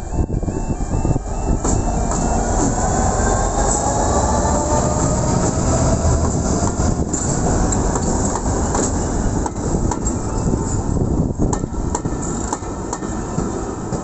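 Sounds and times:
diesel locomotives passing: 0.0 - 14.0
rumble of wheels on rail: 0.0 - 14.0
wheels clicking over rail joints: 4.6 - 14.0.

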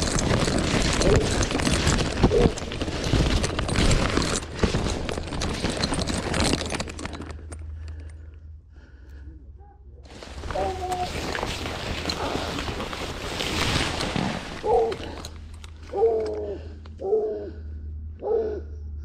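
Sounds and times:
dry corn leaves rustling: 0.0 - 7.3, 10.1 - 16.4
footsteps in dirt: 0.0 - 7.6, 10.1 - 17.0.

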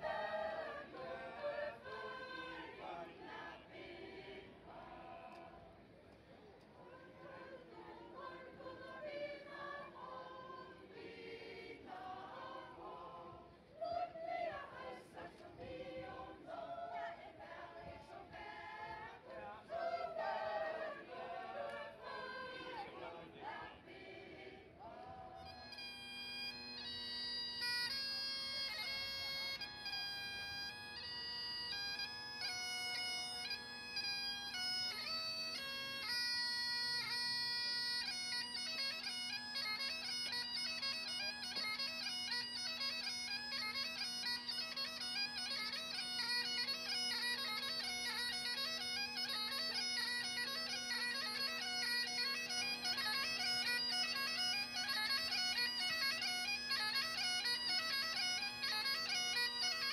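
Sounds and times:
bagpipes playing a tune: 0.0 - 5.0, 6.9 - 13.3, 14.3 - 24.4, 25.2 - 59.9
choir singing: 0.0 - 5.7, 6.8 - 25.5.

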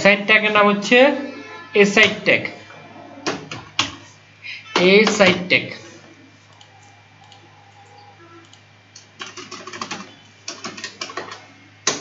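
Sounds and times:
computer keyboard typing: 6.5 - 12.0.

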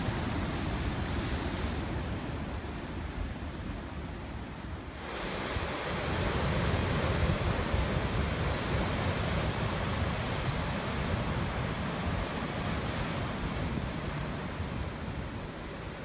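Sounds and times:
wind rumbling on microphone: 0.0 - 16.0
ocean surf breaking on rocks: 4.9 - 16.0.

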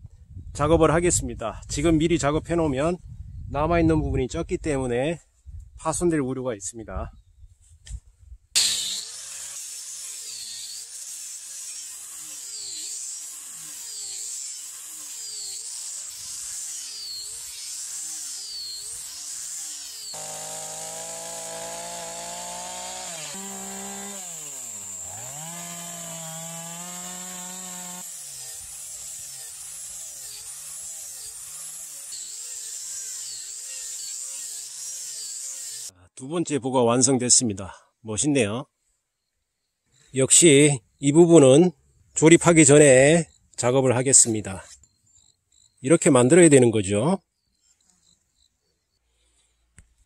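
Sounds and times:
power tool cutting wood: 8.6 - 35.9.

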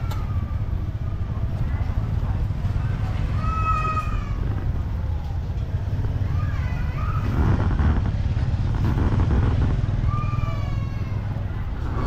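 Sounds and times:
market crowd rumble: 0.0 - 12.0.

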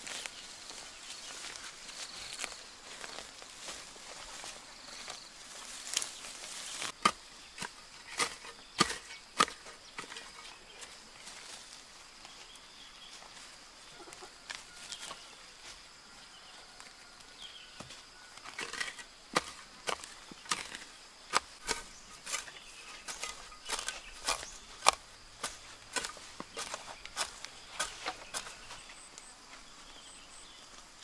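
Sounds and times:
hoe chopping into soil: 6.8 - 10.4, 17.8 - 29.0.

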